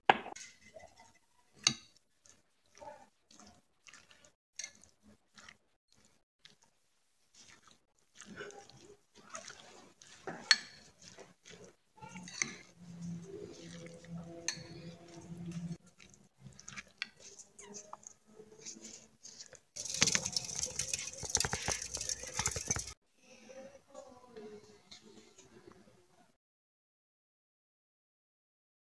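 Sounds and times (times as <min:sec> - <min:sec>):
spoon stirring wet food: 0:00.2 - 0:23.0
burning charcoal crackling: 0:19.8 - 0:23.0
spoon clinking against bowl: 0:19.8 - 0:23.0.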